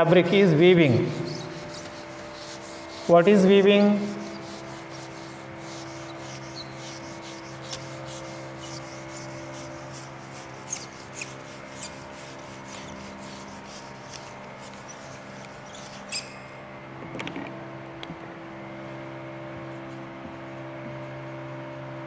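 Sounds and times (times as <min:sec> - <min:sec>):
eraser rubbing whiteboard: 0:00.4 - 0:16.6.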